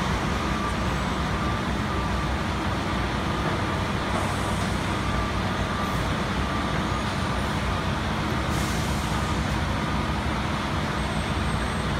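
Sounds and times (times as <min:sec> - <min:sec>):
city traffic: 0:00.0 - 0:11.9
vehicle engines idling: 0:00.0 - 0:11.9.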